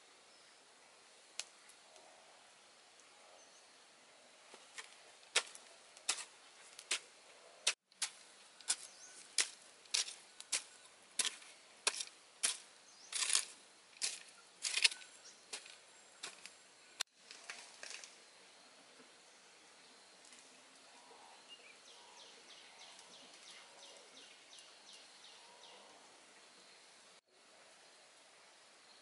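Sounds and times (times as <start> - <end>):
hoe chopping into soil and stones: 4.7 - 7.1, 7.7 - 16.5.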